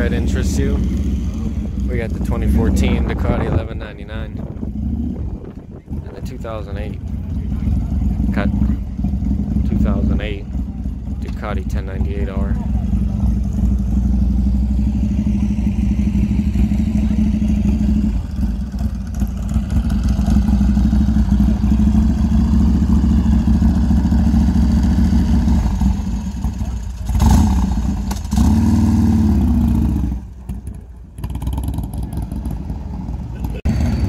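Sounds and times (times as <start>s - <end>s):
motorcycle engine revving: 0.0s - 34.0s
motorcycle engine rumbling: 0.0s - 34.0s.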